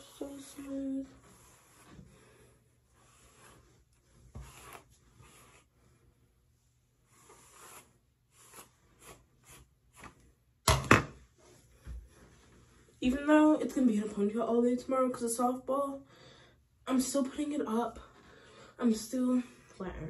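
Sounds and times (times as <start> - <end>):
hairbrush swishing through hair: 0.0 - 2.2, 2.9 - 5.9, 7.0 - 10.2.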